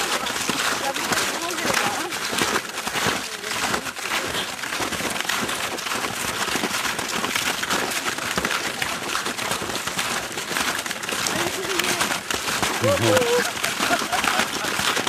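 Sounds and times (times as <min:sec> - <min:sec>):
footsteps crunching in snow: 0:00.0 - 0:15.0.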